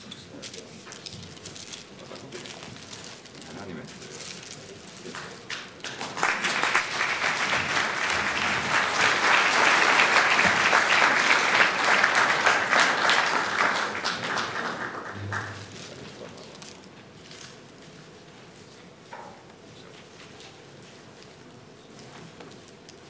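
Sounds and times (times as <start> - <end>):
audience applauding: 5.1 - 16.2.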